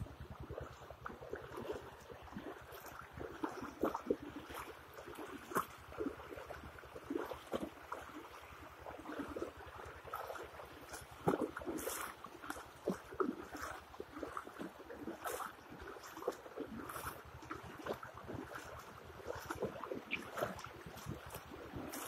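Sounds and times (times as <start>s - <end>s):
wind buffeting microphone: 0.0s - 3.4s, 17.6s - 22.0s
floodwater flowing and splashing: 0.0s - 22.0s.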